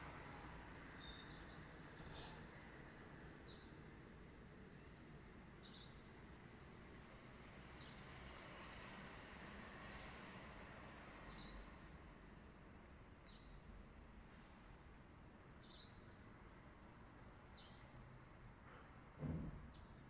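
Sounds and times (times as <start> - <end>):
bird chirping: 1.0 - 1.7, 17.5 - 18.0.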